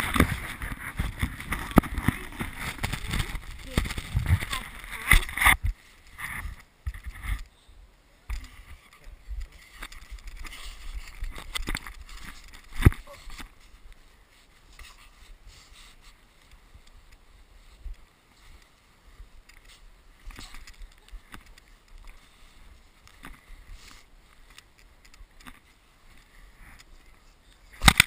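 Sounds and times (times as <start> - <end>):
wind rumble on microphone: 0.0 - 7.4
snow crunching against camera: 0.0 - 7.5, 8.4 - 28.0.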